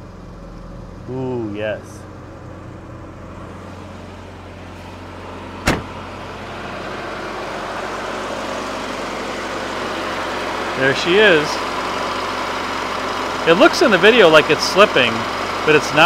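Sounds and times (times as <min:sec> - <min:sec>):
car engine idling: 0:00.0 - 0:16.0
sharp knock: 0:05.6 - 0:05.9.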